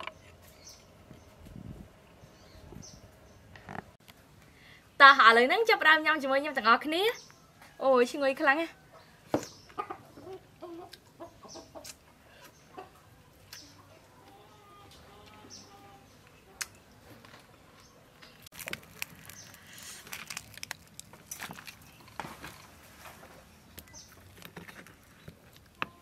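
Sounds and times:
chickens clucking: 8.9 - 16.6
meat tearing and crackling: 18.4 - 22.6
person chewing: 18.5 - 22.0.

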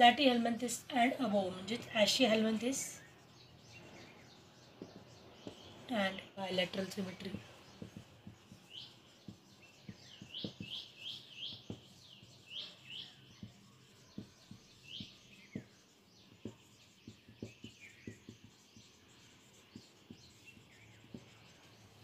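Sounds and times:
marker squeaking on paper: 6.7 - 22.0.

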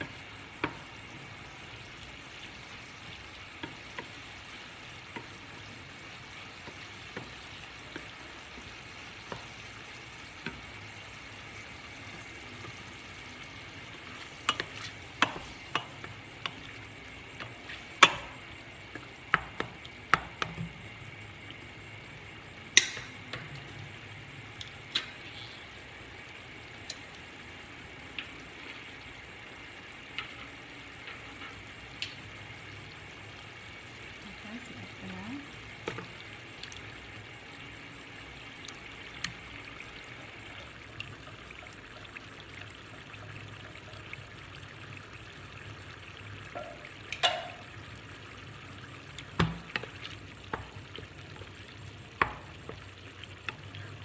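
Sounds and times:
meat sizzling in pan: 0.0 - 54.0.

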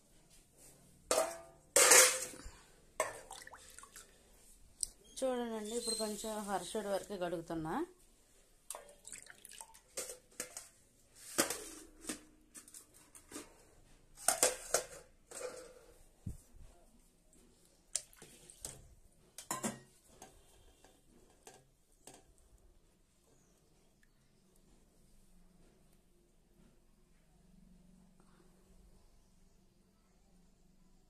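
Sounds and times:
metal vessels clinking: 1.1 - 4.0, 8.7 - 10.8, 14.2 - 15.9
water splashing and dripping: 3.0 - 4.1, 8.7 - 10.0, 17.9 - 18.8
water pouring over rice: 8.7 - 9.9.

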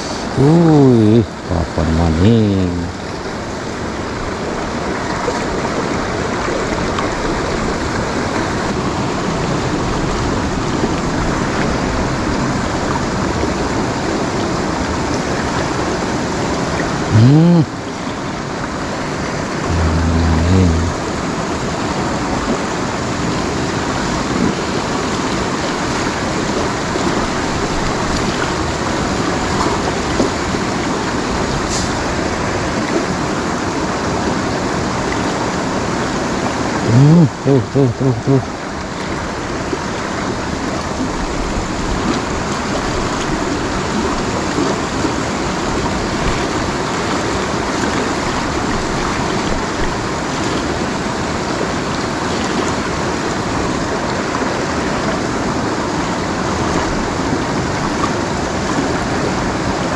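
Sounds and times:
short hum: 19.6 - 21.0, 36.9 - 38.5.

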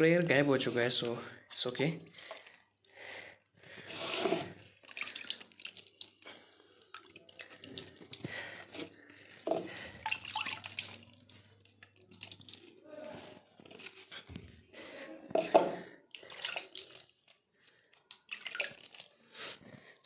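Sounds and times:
water splashing on plants: 10.0 - 11.2, 18.1 - 19.1.

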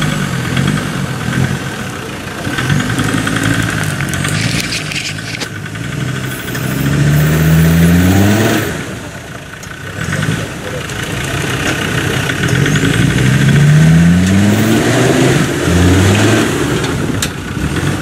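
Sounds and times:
diesel engine revving under load: 0.0 - 18.0
scraping clatter: 2.4 - 5.8.

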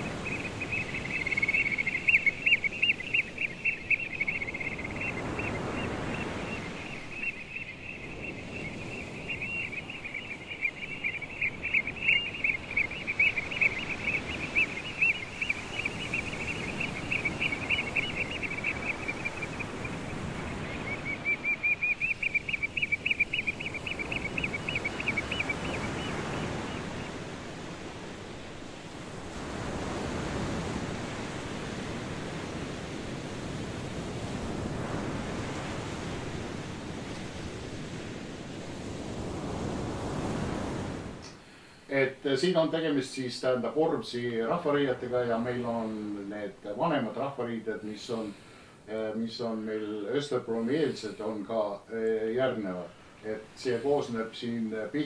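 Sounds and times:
surf washing on sand: 0.0 - 55.0
wind: 0.0 - 55.0.

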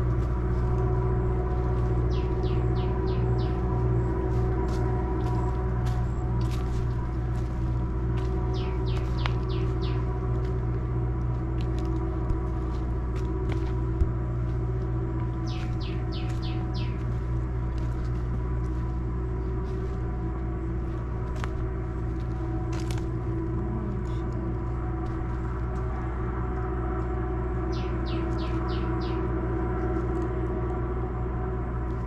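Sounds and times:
steady mechanical hum: 0.0 - 32.0
bird chirping: 2.1 - 3.7, 8.5 - 10.1, 15.4 - 17.1, 27.7 - 29.3.

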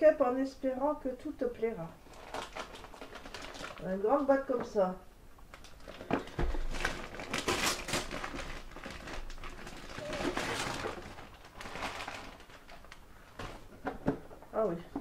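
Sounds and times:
wrapping paper tearing and crumpling: 2.0 - 4.0, 5.5 - 13.6.

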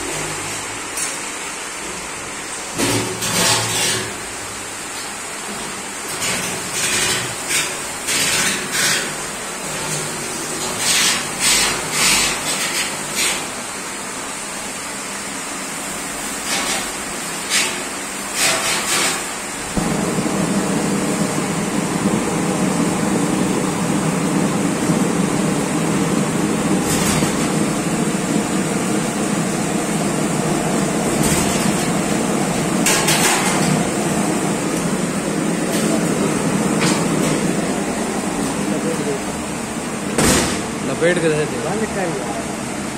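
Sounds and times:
gas burners rushing: 19.6 - 42.4.

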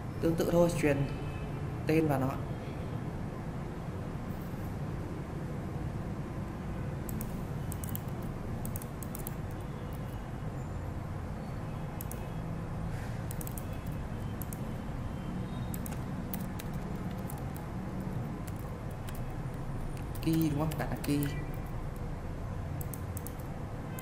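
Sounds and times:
keyboard typing clicks: 7.1 - 10.2, 12.0 - 12.3, 13.3 - 14.8, 15.7 - 22.1, 22.8 - 24.0.

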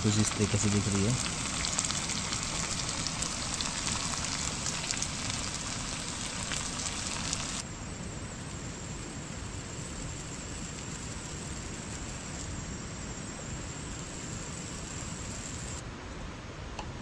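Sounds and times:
curry sizzling in a pan: 0.0 - 7.6.

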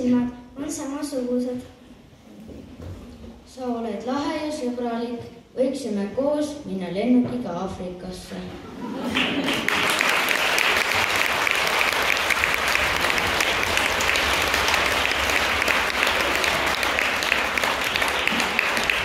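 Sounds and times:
audience applauding: 9.0 - 19.0.

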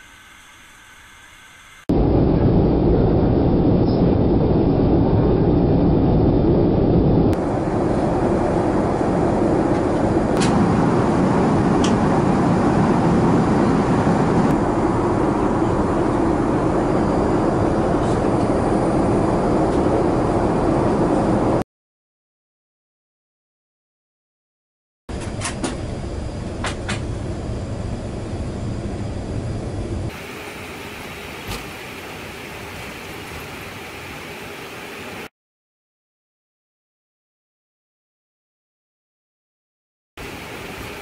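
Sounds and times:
airplane cabin rumble: 1.9 - 21.6, 25.1 - 35.3.

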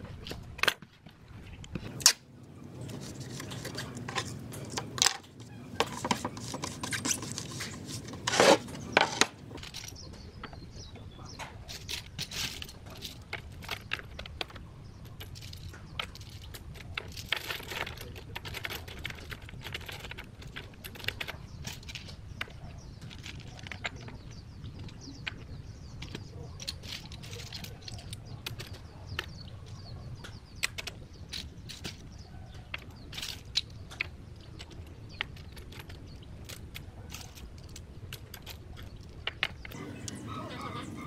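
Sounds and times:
shells clicking on wood: 11.4 - 29.5, 30.2 - 40.2.

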